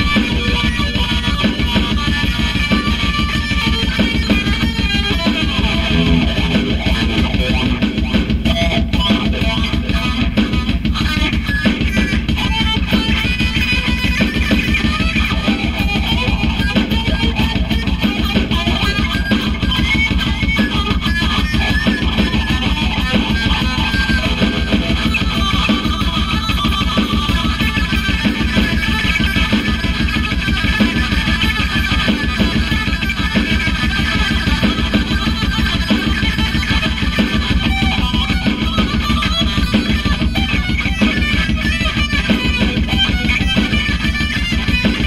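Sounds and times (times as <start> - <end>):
electric guitar fast runs: 1.9 - 45.0
rapid low pulse: 5.9 - 8.1.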